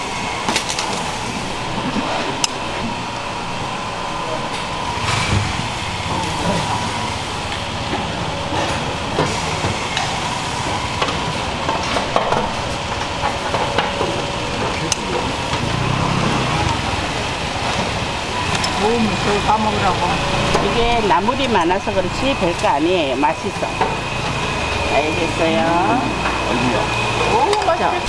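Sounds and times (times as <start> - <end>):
market noise: 0.0 - 28.0
hubbub of voices: 13.8 - 28.0.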